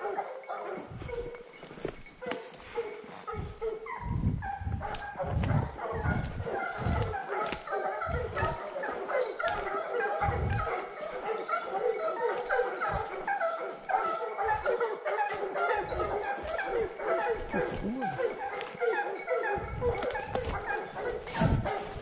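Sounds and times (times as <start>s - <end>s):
hounds yelping in chorus: 0.0s - 22.0s
low thuds: 3.5s - 7.2s.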